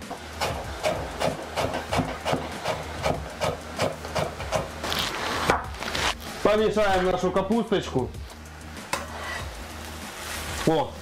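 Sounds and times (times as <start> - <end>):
knife chopping on cutting board: 0.0 - 4.7.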